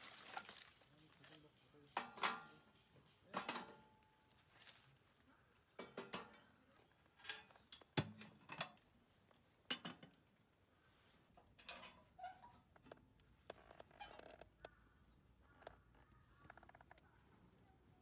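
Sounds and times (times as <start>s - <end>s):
sticks clattering into metal stove: 0.2s - 4.1s, 5.7s - 8.9s, 9.7s - 10.2s, 11.4s - 12.7s
metal lid clanks: 2.0s - 3.9s, 5.8s - 6.4s, 11.6s - 12.0s.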